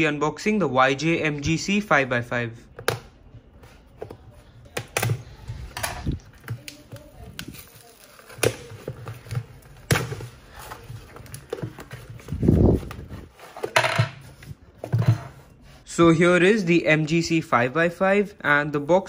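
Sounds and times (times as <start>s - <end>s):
packing tape cut and peeled: 6.0s - 11.5s.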